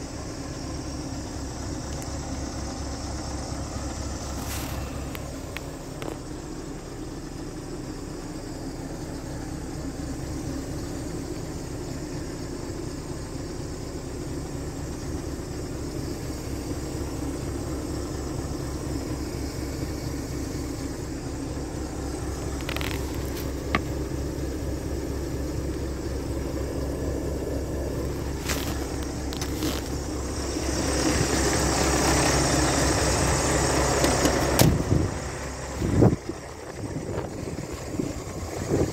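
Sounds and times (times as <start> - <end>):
diesel engine idling: 0.0 - 38.9
outside air noise: 0.0 - 38.9.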